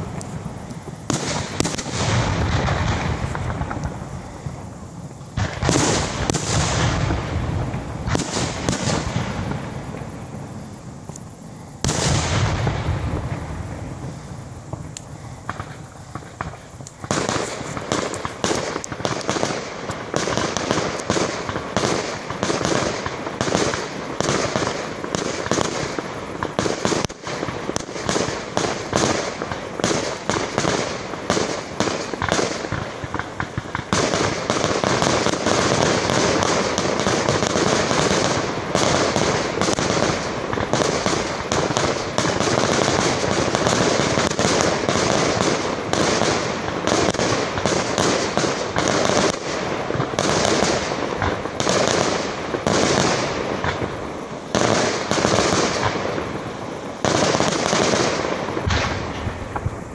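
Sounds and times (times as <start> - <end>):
fireworks bangs and crackling: 0.0 - 59.9.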